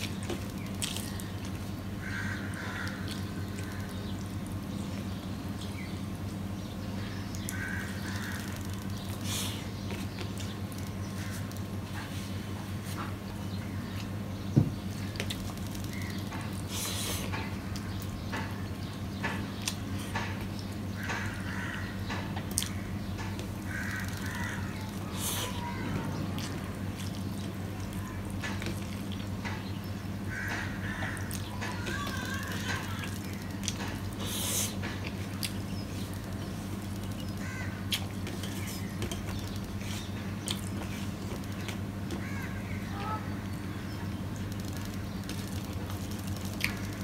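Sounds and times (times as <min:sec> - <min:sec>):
steady low hum: 0:00.0 - 0:47.0
man chewing with mouth clicks: 0:22.5 - 0:22.8, 0:37.9 - 0:41.8.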